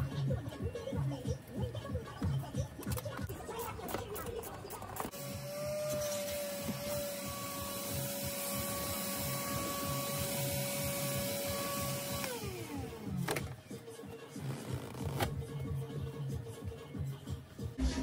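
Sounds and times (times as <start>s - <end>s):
vacuum cleaner running: 5.1s - 13.6s.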